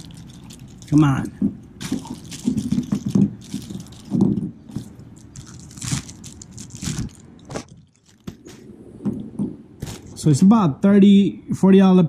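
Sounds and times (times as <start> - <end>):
plastic bag crinkling: 0.0 - 8.7, 9.8 - 10.2.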